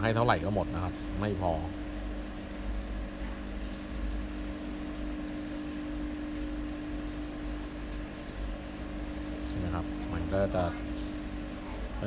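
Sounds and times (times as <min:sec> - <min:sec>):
aquarium pump humming: 0:00.0 - 0:12.0.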